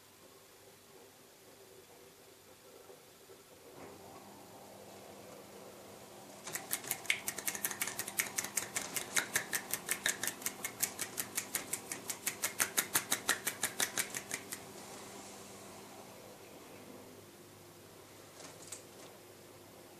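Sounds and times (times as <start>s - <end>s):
fast one-handed clapping: 6.5s - 14.7s.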